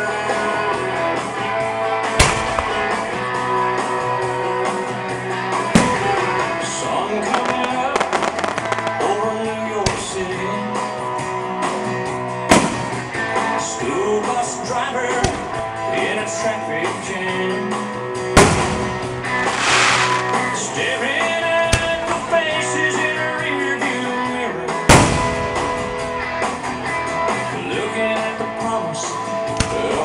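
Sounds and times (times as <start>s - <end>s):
music with guitar: 0.0s - 30.0s
firework shells bursting: 2.2s - 3.4s, 5.8s - 10.2s, 18.4s - 20.6s.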